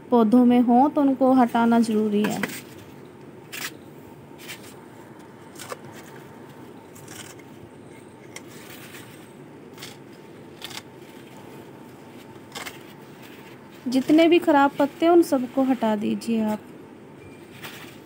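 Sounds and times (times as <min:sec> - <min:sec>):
low background noise: 0:00.0 - 0:18.0
leaves and stalks crackling: 0:08.5 - 0:16.6.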